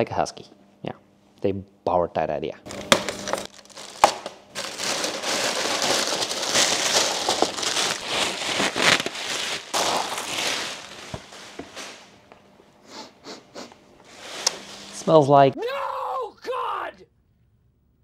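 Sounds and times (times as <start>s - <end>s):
plastic wrap crinkling: 2.7s - 12.2s.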